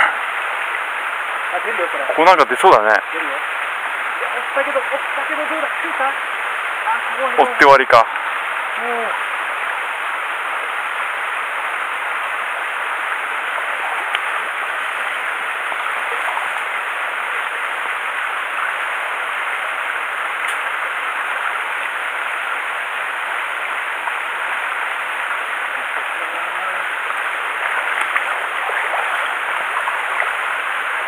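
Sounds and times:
stream rushing over rocks: 0:00.0 - 0:31.0
faint clicks: 0:14.1 - 0:14.3.

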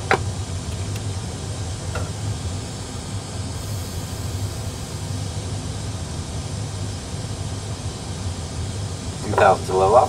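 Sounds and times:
low hum: 0:00.0 - 0:10.0
rushing air: 0:02.0 - 0:07.2.

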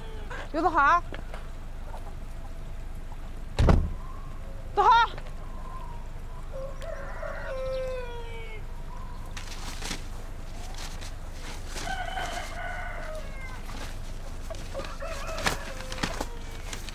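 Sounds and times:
loud thump: 0:03.6 - 0:04.0
rooster crowing: 0:05.4 - 0:09.2, 0:11.6 - 0:16.9.

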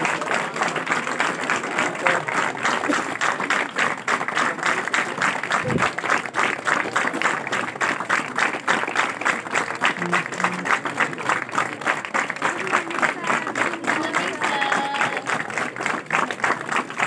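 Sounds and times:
audience clapping in rhythm: 0:00.0 - 0:17.0.

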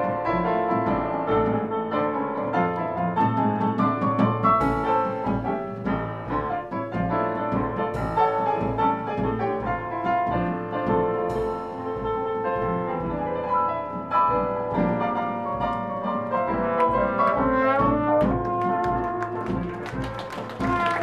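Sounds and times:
jazz band playing: 0:00.0 - 0:21.0
piano: 0:00.0 - 0:21.0
brass horns: 0:16.3 - 0:21.0.

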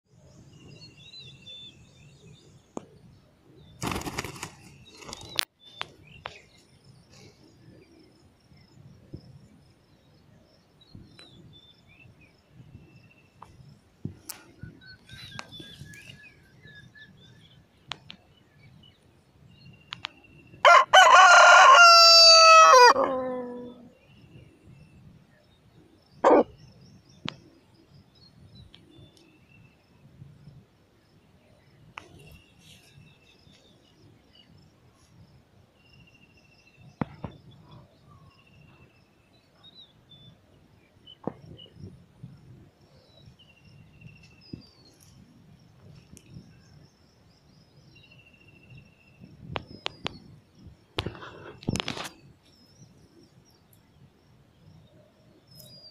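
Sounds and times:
distant bird calls: 0:00.6 - 0:21.6
rooster crowing: 0:20.6 - 0:23.8.

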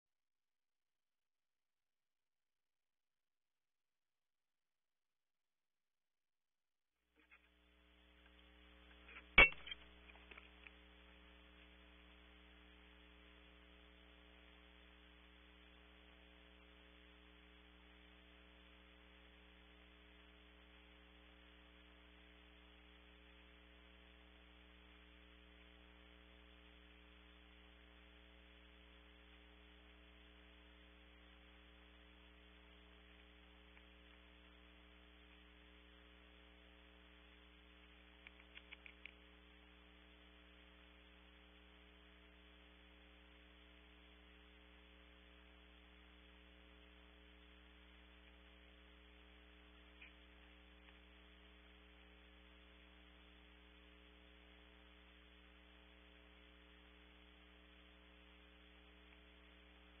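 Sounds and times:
electrical mains hum: 0:07.2 - 1:00.0
faint clicks: 0:37.8 - 0:39.4, 0:49.8 - 0:51.2.

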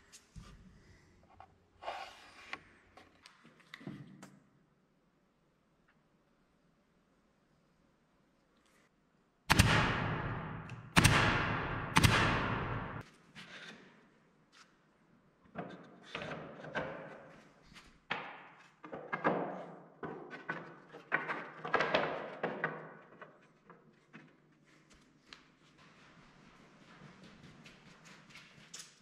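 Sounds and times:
loud echoing thuds: 0:09.5 - 0:13.0.

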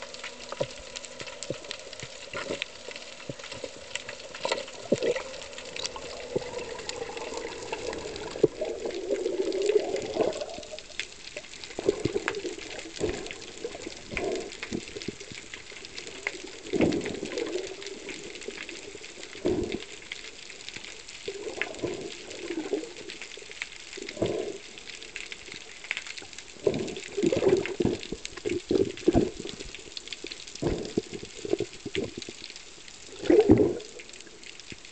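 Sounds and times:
steady hiss: 0:00.0 - 0:34.9
underwater gurgles and bubbles: 0:00.0 - 0:34.9.

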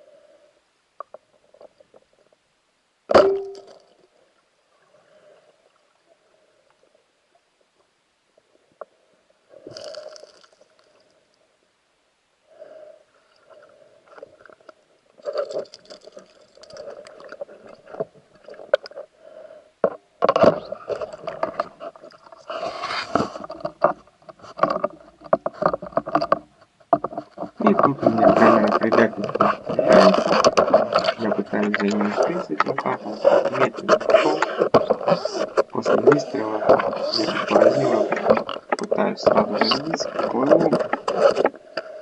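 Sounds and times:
faint steady hum: 0:00.0 - 0:42.0
speargun firing crack: 0:03.1 - 0:03.8
underwater knocks and scraping: 0:19.8 - 0:42.0.

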